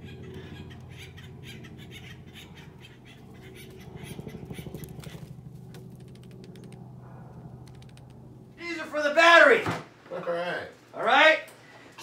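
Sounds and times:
jay squawking: 0.0s - 6.5s
steady low hum: 0.0s - 10.9s.

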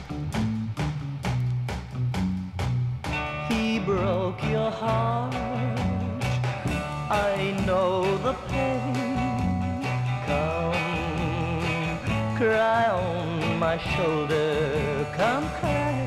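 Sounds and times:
pop ballad instrumental: 0.0s - 16.0s.

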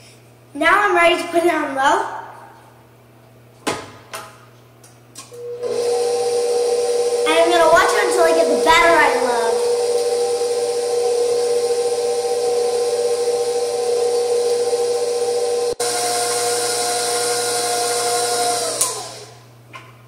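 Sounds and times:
stand mixer motor whine: 5.4s - 19.5s.

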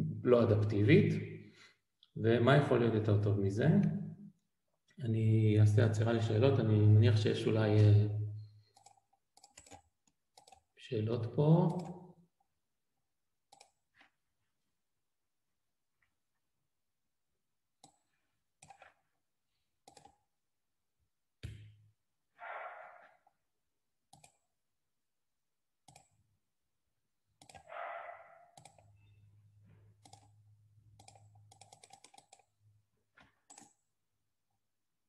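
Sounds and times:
computer keys clicking: 8.7s - 10.7s, 11.7s - 12.0s, 13.5s - 13.8s, 18.6s - 19.0s, 19.8s - 20.2s, 24.1s - 24.5s, 25.9s - 26.2s, 27.4s - 27.7s, 28.6s - 28.9s, 30.0s - 32.6s, 33.4s - 33.8s.

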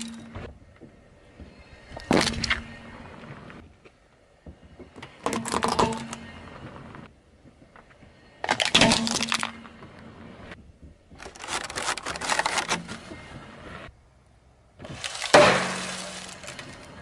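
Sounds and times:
plastic toy cracking under tyre: 11.2s - 13.0s
foil crinkling: 11.2s - 13.1s, 14.9s - 16.9s.

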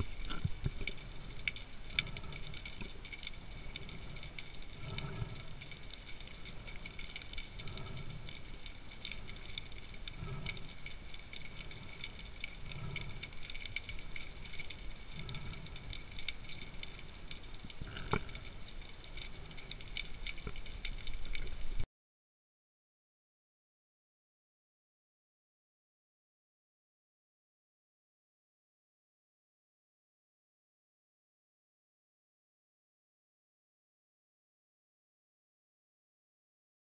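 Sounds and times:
low watery whoosh: 0.0s - 18.6s
underwater crackling hiss: 0.0s - 21.8s.

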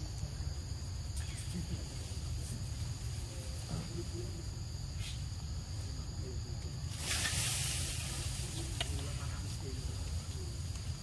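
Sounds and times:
high insect drone: 0.0s - 11.0s
hissing rush: 6.9s - 10.6s.

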